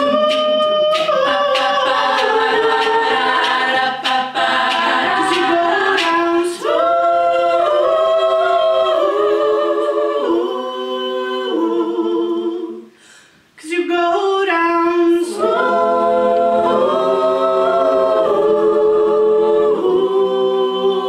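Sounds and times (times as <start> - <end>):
sharp percussive beat: 0.0 - 6.6
women singing a cappella: 0.0 - 12.9, 15.2 - 21.0.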